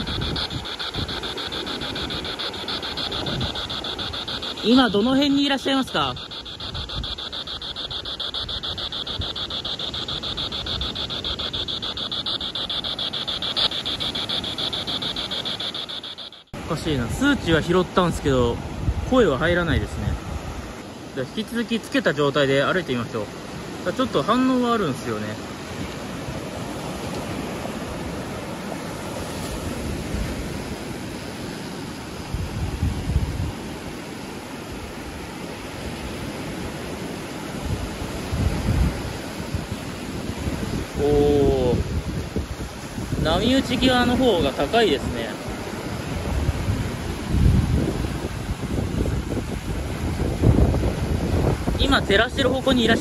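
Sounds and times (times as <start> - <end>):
radio static chopping: 0.0 - 16.5
waves breaking on sandy beach: 0.0 - 53.0.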